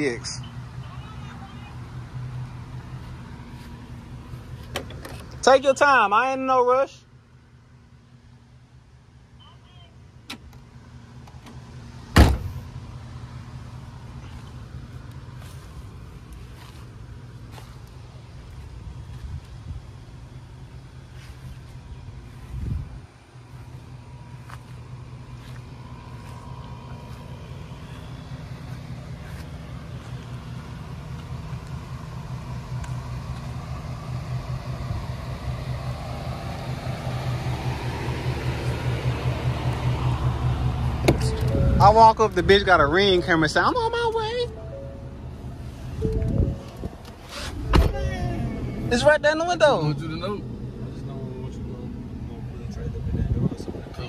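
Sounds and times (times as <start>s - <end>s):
vehicle engine idling hum: 0.0s - 54.0s
vehicle door shutting thud: 4.6s - 5.3s, 11.3s - 12.6s, 41.0s - 41.8s, 46.0s - 48.1s.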